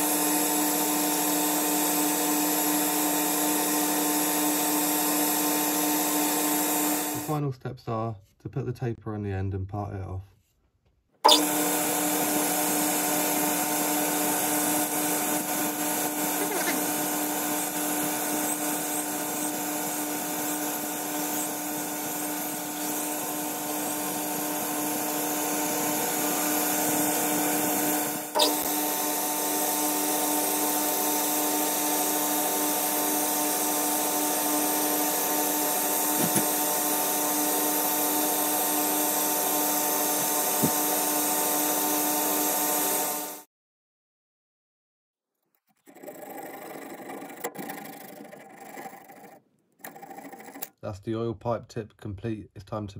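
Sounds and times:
lathe motor and gear hum: 0:11.3 - 0:43.4.

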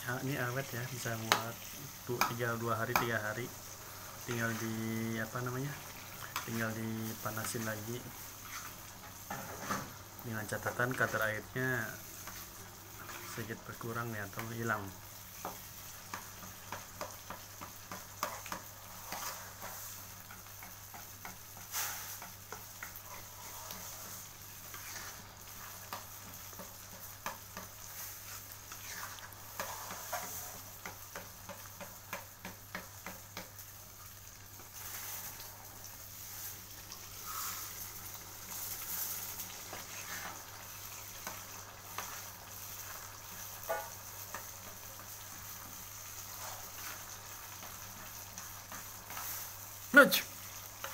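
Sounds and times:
paste sizzling in a pan: 0:00.0 - 0:50.9
spatula scraping a pan: 0:05.7 - 0:10.0, 0:12.1 - 0:13.4, 0:15.3 - 0:33.7, 0:34.5 - 0:49.6.

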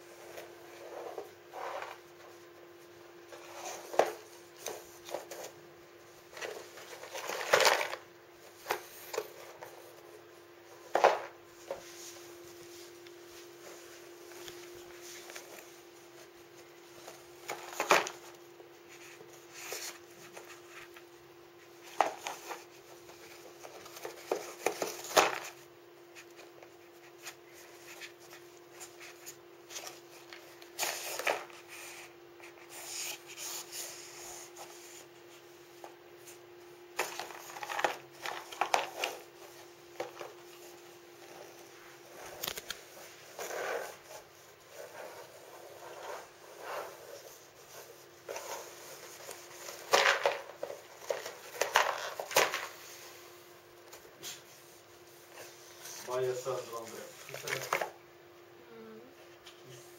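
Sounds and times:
faint steady hum: 0:00.0 - 0:59.9
cat rustling paper box: 0:06.3 - 0:10.1, 0:10.8 - 0:35.1, 0:36.2 - 0:53.2.

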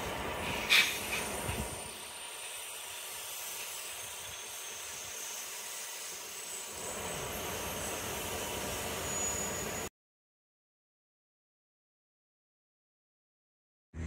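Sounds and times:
train wheels rumbling on rails: 0:00.0 - 0:09.9
faint high whistling tones: 0:02.8 - 0:09.9.

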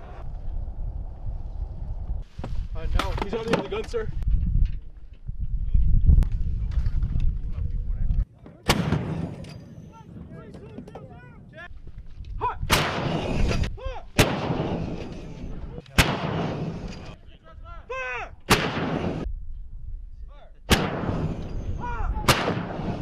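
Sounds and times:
howitzers firing: 0:14.2 - 0:17.1, 0:18.5 - 0:19.3, 0:20.7 - 0:23.0.

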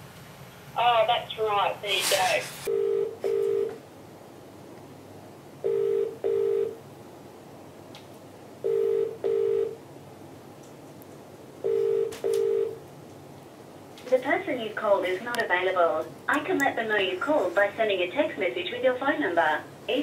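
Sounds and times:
telephone ringback double beeps: 0:02.7 - 0:03.7, 0:05.7 - 0:06.8, 0:08.7 - 0:09.8, 0:11.7 - 0:12.8.

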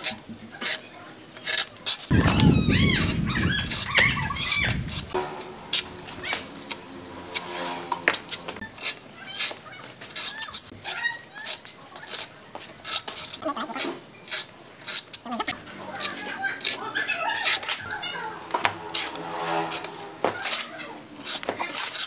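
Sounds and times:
trowel scraping cement: 0:18.7 - 0:22.0.

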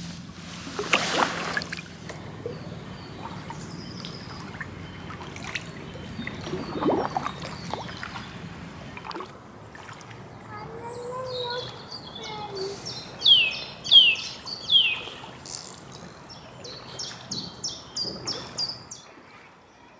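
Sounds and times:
paddle splashing: 0:00.0 - 0:10.5, 0:16.6 - 0:19.6
paddle swishing through water: 0:00.0 - 0:10.5, 0:14.7 - 0:19.7
water dripping: 0:03.2 - 0:10.2.

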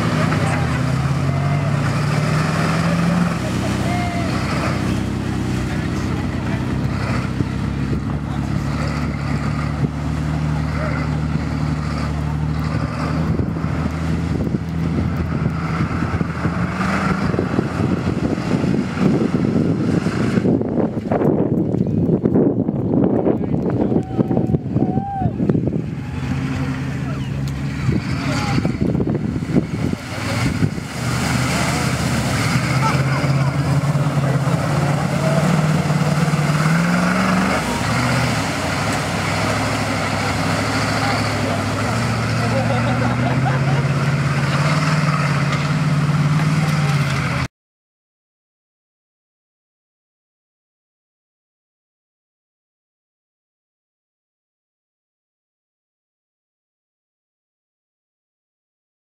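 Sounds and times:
truck engine running hard: 0:00.0 - 0:47.5
wind on microphone: 0:13.2 - 0:26.2.

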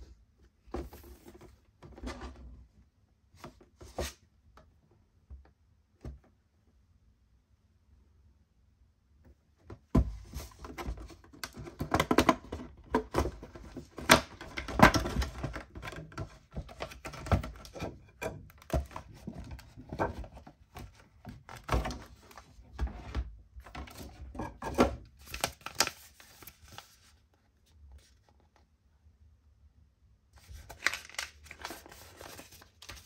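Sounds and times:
plastic packaging box handled: 0:10.0 - 0:27.2, 0:30.4 - 0:33.0.

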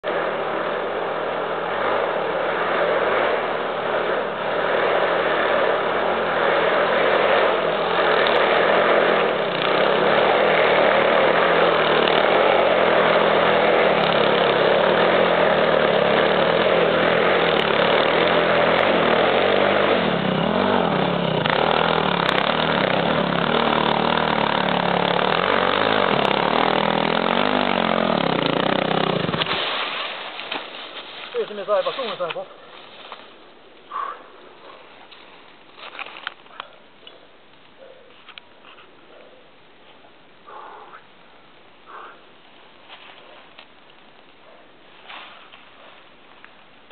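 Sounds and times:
dirt bike engine revving: 0:00.0 - 0:30.7.

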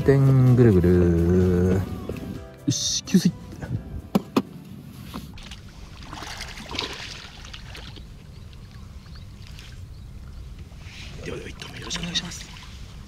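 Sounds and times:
fish splashing in shallow water: 0:05.3 - 0:10.8.

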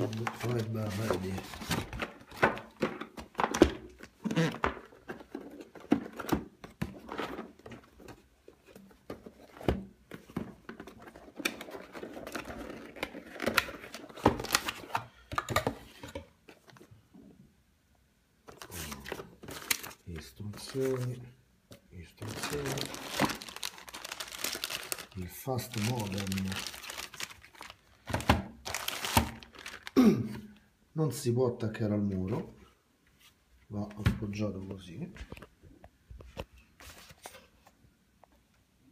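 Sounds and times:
cardboard and paper rustling: 0:00.0 - 0:16.9, 0:18.5 - 0:21.2, 0:22.2 - 0:30.0, 0:36.2 - 0:37.8.

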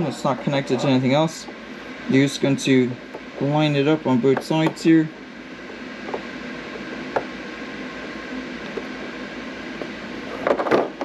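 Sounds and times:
steady room hum: 0:00.0 - 0:11.0.

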